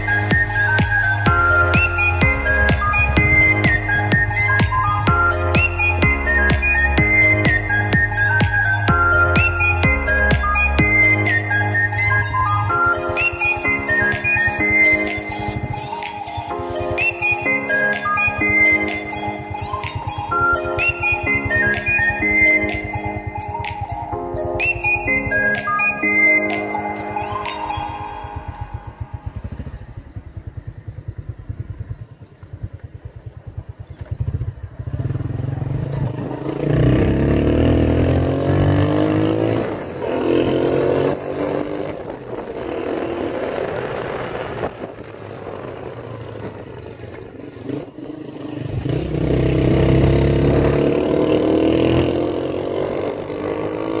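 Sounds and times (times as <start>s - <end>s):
motorcycle engine revving: 28.3s - 54.0s.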